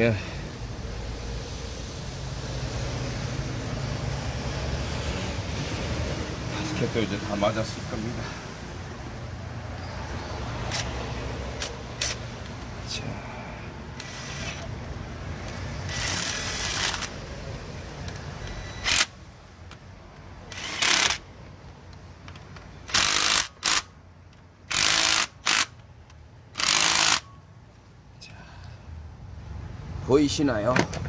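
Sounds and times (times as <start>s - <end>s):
cordless drill spinning: 14.0s - 14.7s, 15.8s - 17.2s, 20.5s - 21.2s, 22.9s - 23.9s, 24.7s - 25.8s, 26.6s - 27.3s.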